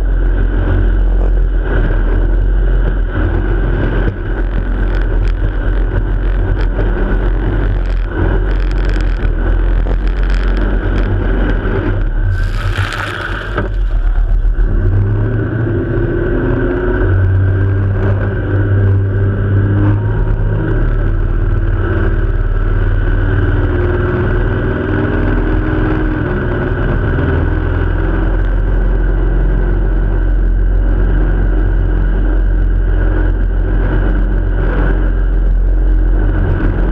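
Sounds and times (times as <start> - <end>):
jet boat engine drone: 0.0 - 36.9
rushing wind and water: 0.0 - 36.9
loud hiss: 12.3 - 14.4.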